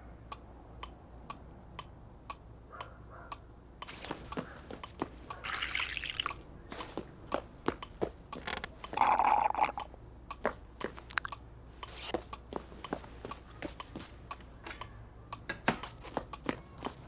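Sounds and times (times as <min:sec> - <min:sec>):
small clicks and taps: 0:09.8 - 0:17.0.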